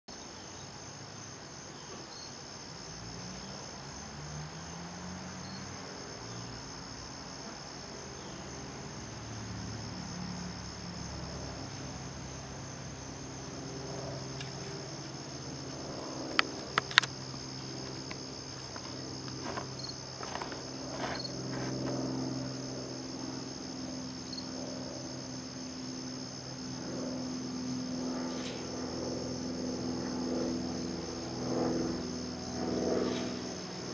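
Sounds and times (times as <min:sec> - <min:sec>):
crickets chirping: 0:00.1 - 0:33.9
low wavering hum: 0:08.4 - 0:33.9.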